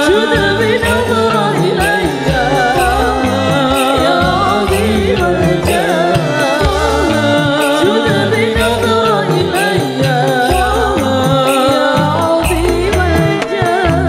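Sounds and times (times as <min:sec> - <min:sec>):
man singing ornamented melody: 0:00.0 - 0:14.0
sharp high percussion hits: 0:00.0 - 0:14.0.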